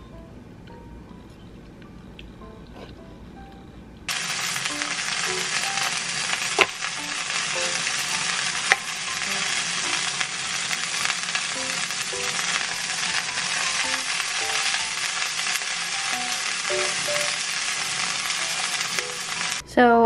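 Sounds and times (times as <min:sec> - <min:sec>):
food sizzling in a frying pan: 0:04.1 - 0:19.6.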